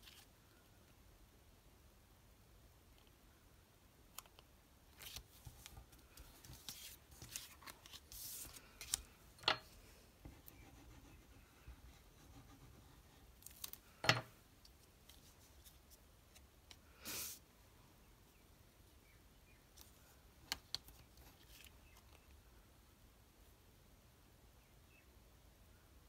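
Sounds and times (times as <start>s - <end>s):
cardstock rustling and scraping: 5.0s - 9.8s.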